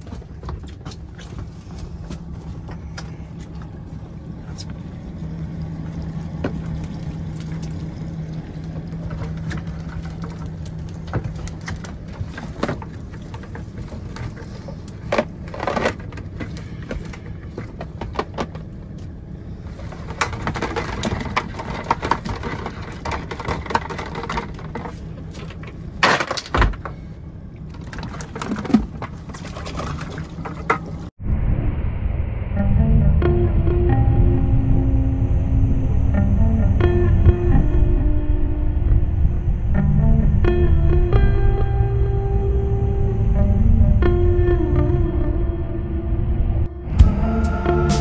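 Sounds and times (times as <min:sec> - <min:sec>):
boat engine hum: 0:00.0 - 0:31.2, 0:32.5 - 0:48.0
net and bucket rattling: 0:06.7 - 0:18.7, 0:19.6 - 0:27.1, 0:27.7 - 0:31.1
water and fish splashing into bucket: 0:27.8 - 0:30.9
sharp loud hit: 0:31.2 - 0:36.2.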